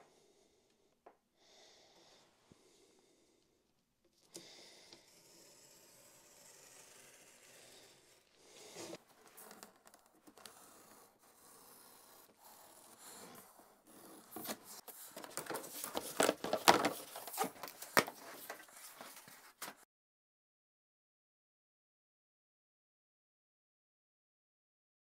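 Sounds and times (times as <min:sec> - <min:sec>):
utility knife cutting cardboard: 0:04.4 - 0:19.2
handling sounds: 0:14.2 - 0:19.8.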